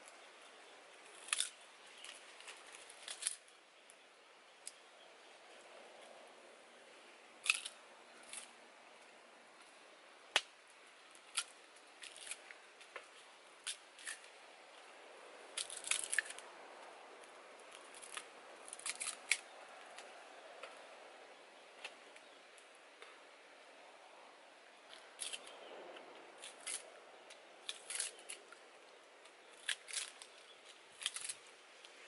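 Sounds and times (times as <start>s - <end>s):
knife cutting sugar cane: 7.4s - 8.5s, 15.6s - 16.4s, 17.9s - 19.5s, 27.6s - 28.4s, 29.5s - 30.4s, 31.0s - 31.4s.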